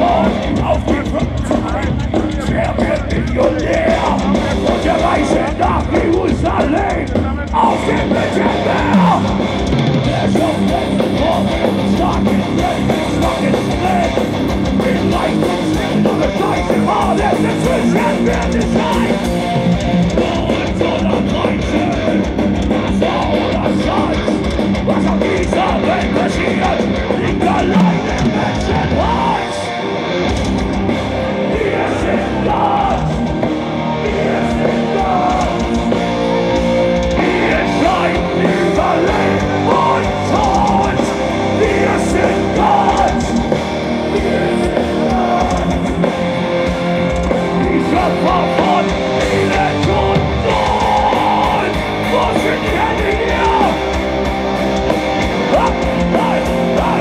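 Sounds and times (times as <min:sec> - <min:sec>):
distorted guitars: 0:00.0 - 0:57.0
fast dense drumming: 0:00.0 - 0:57.0.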